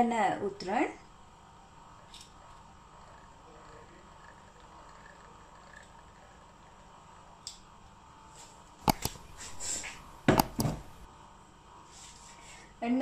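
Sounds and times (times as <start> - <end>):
faint steady hum: 0.0 - 13.0
sharp clicks: 8.8 - 11.1.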